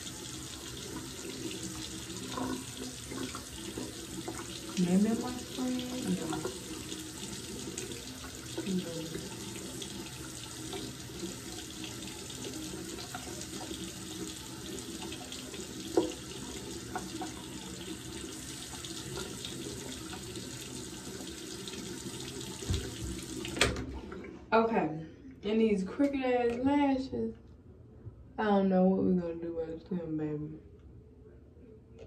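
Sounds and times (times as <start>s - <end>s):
tap water splashing into sink: 0.0s - 24.0s.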